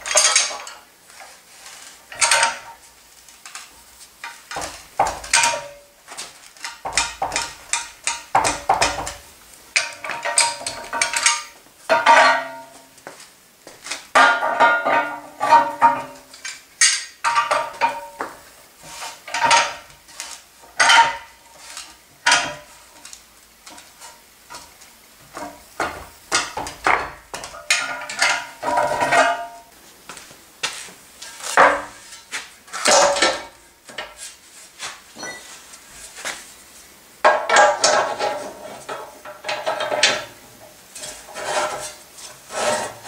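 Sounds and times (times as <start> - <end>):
metal parts clanking: 0.0 - 0.9, 2.1 - 2.7, 9.8 - 12.7, 20.8 - 21.3, 25.4 - 29.6, 31.5 - 34.1.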